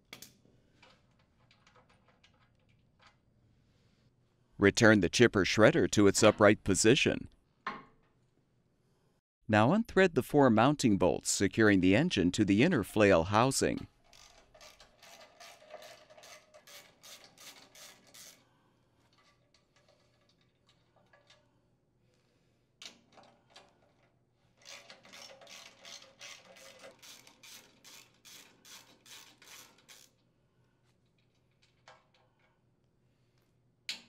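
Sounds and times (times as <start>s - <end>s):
ratchet wrench clicking: 14.1s - 18.4s, 24.6s - 30.2s.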